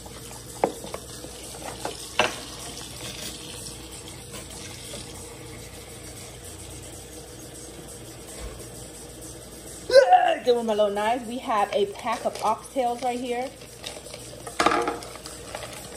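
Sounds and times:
tap running into sink: 0:00.6 - 0:03.4.

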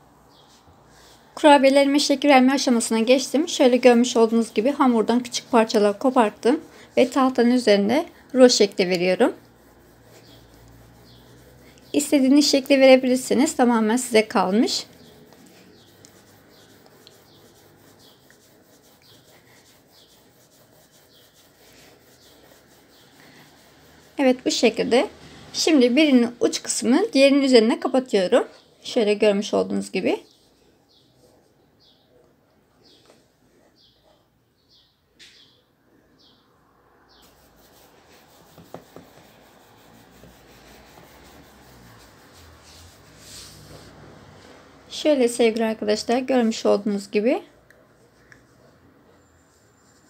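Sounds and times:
dough rubbing on wooden board: 0:01.9 - 0:25.1, 0:37.1 - 0:44.2.

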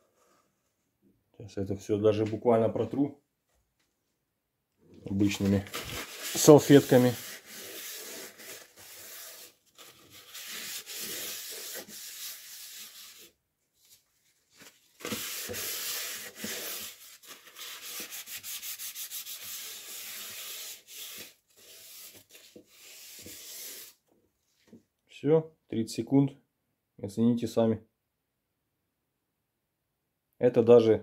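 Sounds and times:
paper napkin rubbing frying pan: 0:05.3 - 0:13.3, 0:15.0 - 0:24.0.

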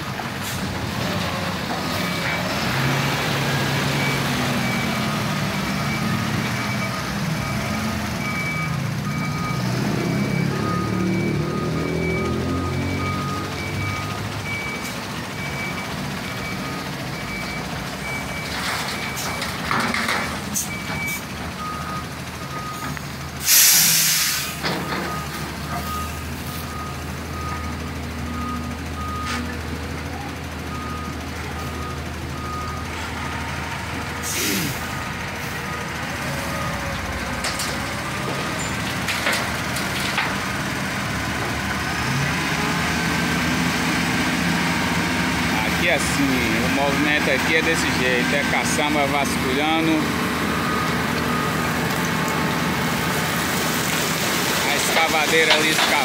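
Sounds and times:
diesel engine running: 0:00.0 - 0:56.0
reversing beeper: 0:02.0 - 0:19.5, 0:45.2 - 0:52.7
air brake hiss: 0:23.4 - 0:24.6, 0:34.2 - 0:34.8.

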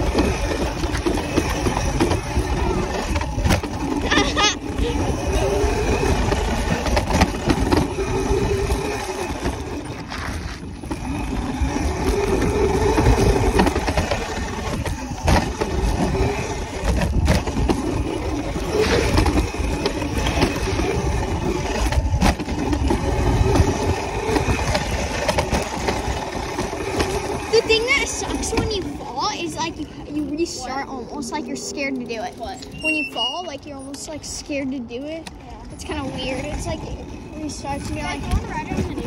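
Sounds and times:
wind rumble on microphone: 0:00.0 - 0:27.6
dirt bike engine revving: 0:00.0 - 0:33.5.

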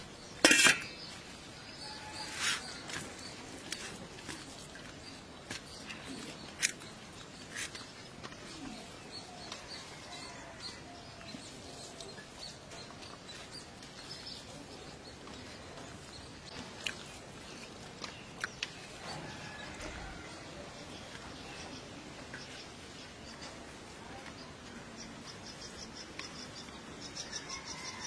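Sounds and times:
birds chirping: 0:00.0 - 0:28.0.

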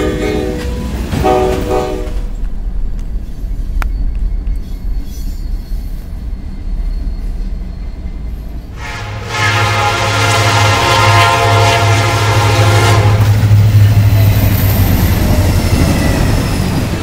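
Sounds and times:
locomotive air horn: 0:00.0 - 0:02.3, 0:08.8 - 0:13.6
freight train rumbling: 0:00.0 - 0:17.0
click: 0:03.8 - 0:04.6.

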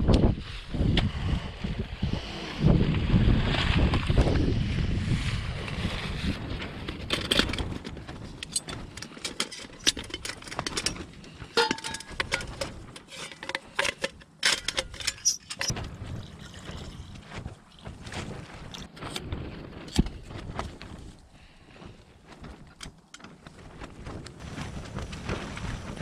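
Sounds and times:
metal pans clinking and scraping: 0:08.4 - 0:15.8.

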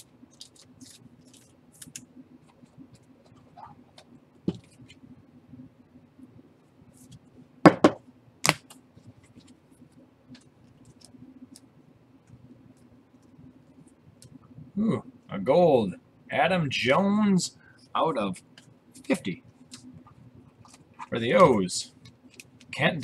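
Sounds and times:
cards and wrappers rustling: 0:00.0 - 0:04.9, 0:20.6 - 0:23.0.

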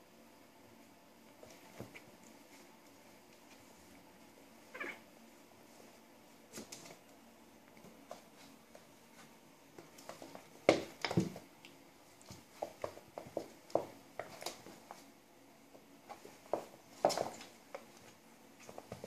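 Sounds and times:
cat meowing: 0:04.7 - 0:05.0
scuffling paws on wooden floor: 0:05.8 - 0:15.1, 0:15.7 - 0:19.0
cats scratching: 0:12.2 - 0:15.1.

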